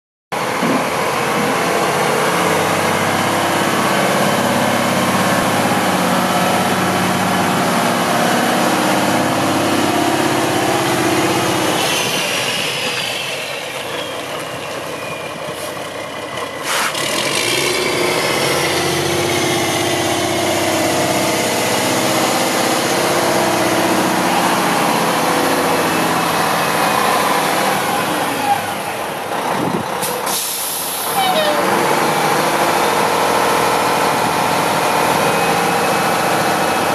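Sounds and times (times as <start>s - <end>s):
truck diesel engine running: 0.4s - 36.9s.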